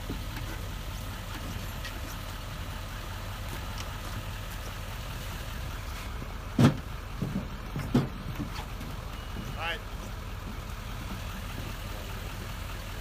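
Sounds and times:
pickup truck idling: 0:00.0 - 0:13.0
loud thump: 0:06.6 - 0:08.2.

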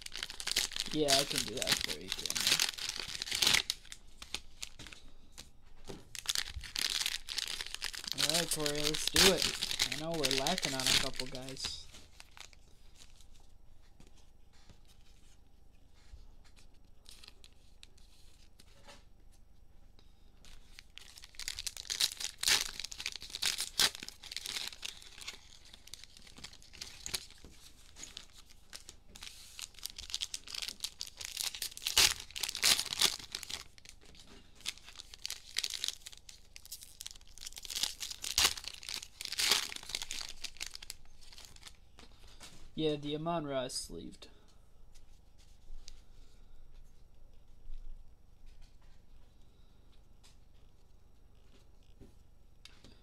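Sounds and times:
cellophane wrappers tearing and crinkling: 0:00.0 - 0:05.0, 0:06.1 - 0:13.3, 0:16.6 - 0:18.6, 0:20.5 - 0:41.8.

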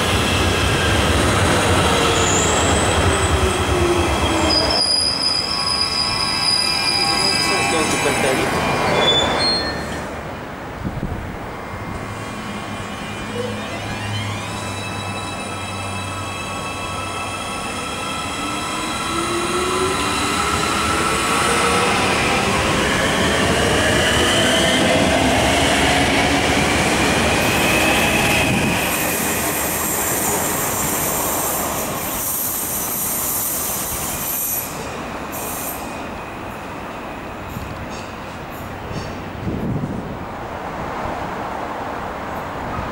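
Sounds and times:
wheel squeal and hiss: 0:04.2 - 0:07.9, 0:28.9 - 0:36.3.

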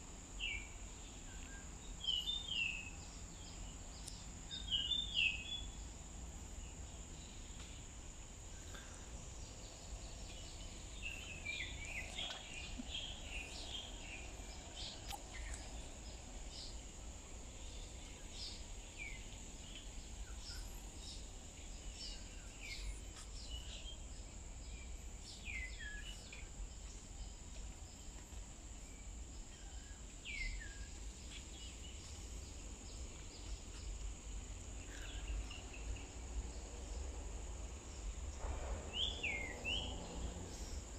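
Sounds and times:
birds chirping: 0:08.6 - 0:34.0.

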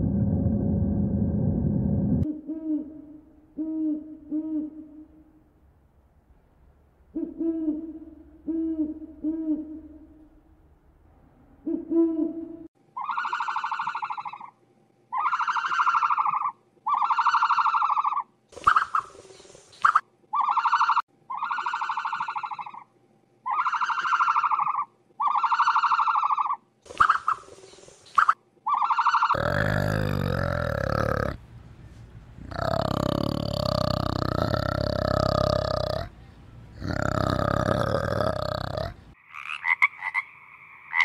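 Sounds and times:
high-pitched animal calls: 0:13.0 - 0:19.1, 0:19.8 - 0:27.4, 0:28.2 - 0:31.4, 0:32.4 - 0:36.1, 0:36.7 - 0:41.0
short low animal hoots: 0:29.4 - 0:31.4, 0:32.4 - 0:36.1.

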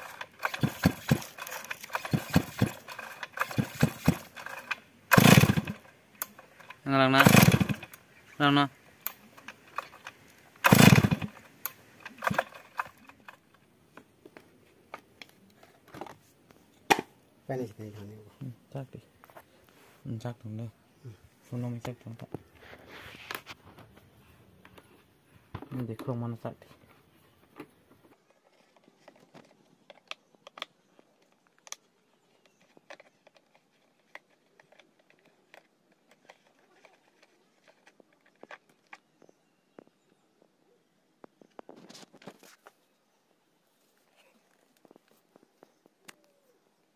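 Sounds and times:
chainsaw pull-start bursts: 0:00.0 - 0:08.0, 0:09.0 - 0:13.2.

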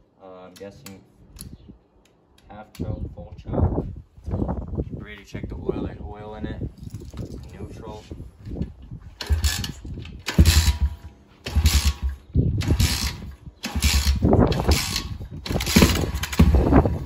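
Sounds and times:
motorbike kick-starter ratcheting whirr: 0:09.2 - 0:17.0.

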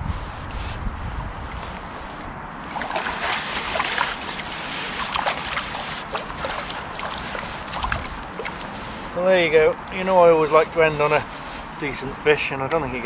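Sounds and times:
water splashing and dripping: 0:02.7 - 0:09.0.

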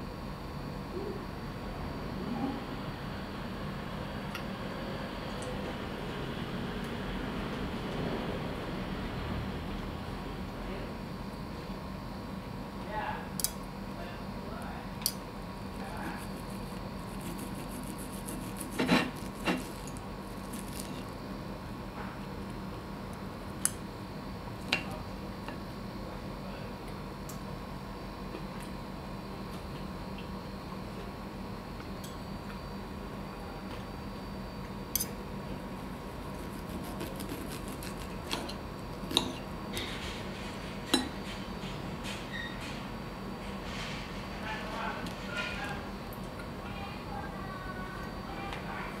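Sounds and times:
steady low hum: 0:00.0 - 0:49.0
knife scraping on meat: 0:15.7 - 0:21.1, 0:35.8 - 0:39.4.

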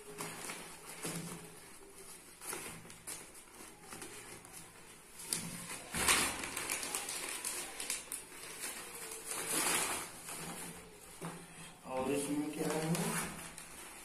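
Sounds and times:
fabric bag rustling: 0:00.0 - 0:11.3, 0:11.9 - 0:14.0.

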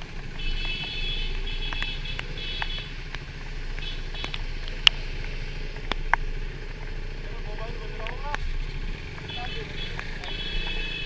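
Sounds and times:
vehicle horn honking: 0:00.4 - 0:03.0, 0:09.2 - 0:11.0.

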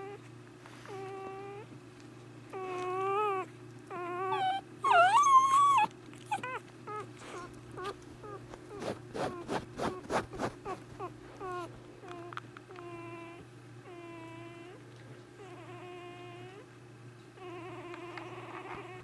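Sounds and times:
puppy crying: 0:00.0 - 0:00.2, 0:00.9 - 0:01.7, 0:02.5 - 0:14.8, 0:15.4 - 0:16.7, 0:17.4 - 0:19.0
puppy squeaks: 0:02.6 - 0:14.7.

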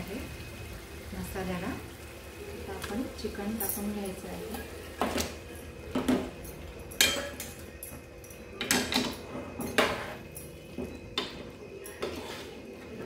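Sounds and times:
utensils clanking on metal pot: 0:02.8 - 0:12.6.

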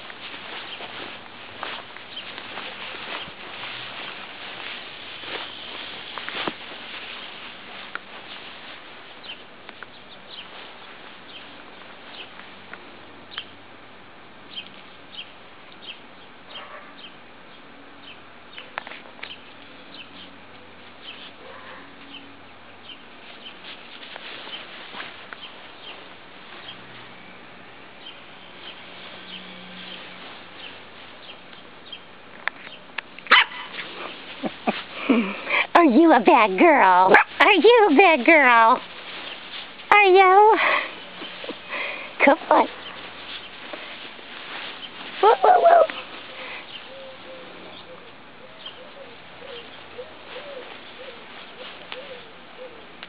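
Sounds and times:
puppy yipping and barking: 0:33.3 - 0:33.8, 0:37.1 - 0:37.4, 0:45.2 - 0:46.0.

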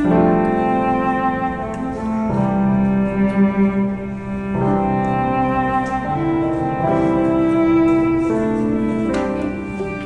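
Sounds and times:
bowed strings holding long notes: 0:00.0 - 0:10.0
piano: 0:00.0 - 0:10.0.

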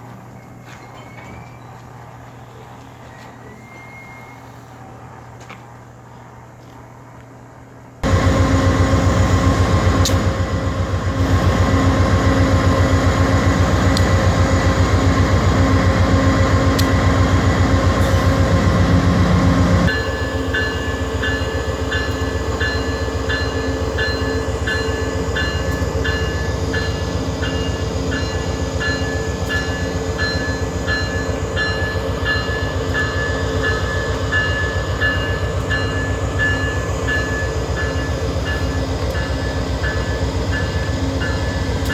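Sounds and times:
diesel locomotive engine drone: 0:00.0 - 0:41.9.

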